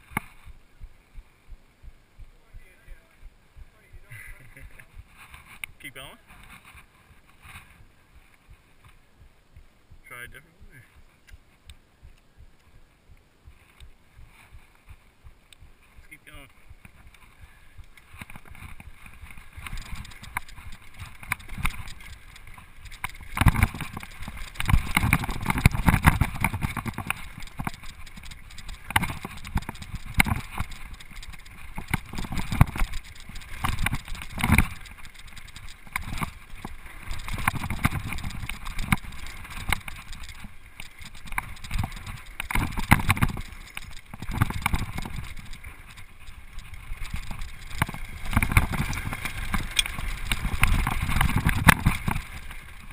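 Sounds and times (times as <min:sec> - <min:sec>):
bike rattling over bumps: 0:17.8 - 0:52.9.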